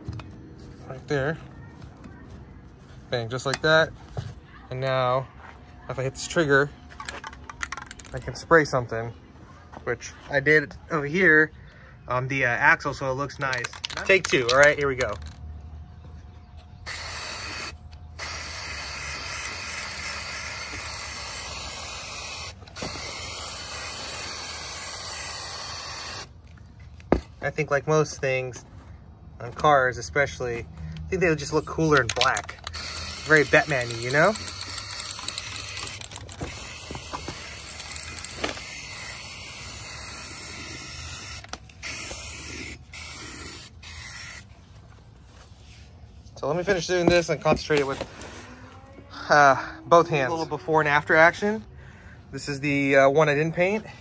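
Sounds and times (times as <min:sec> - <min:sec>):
spray paint can hissing: 0:16.8 - 0:26.4, 0:32.7 - 0:44.5.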